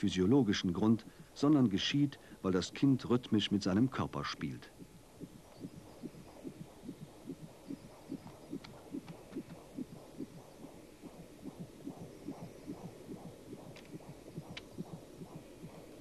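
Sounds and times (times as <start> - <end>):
fast fetal heartbeat: 4.6 - 16.0.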